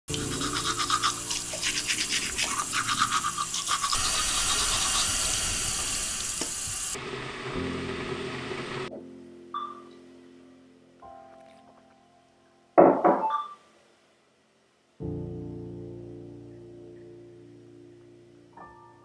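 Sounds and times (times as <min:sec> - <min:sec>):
toothbrush scrubbing teeth: 0:00.1 - 0:06.0
rushing hiss: 0:01.2 - 0:07.0.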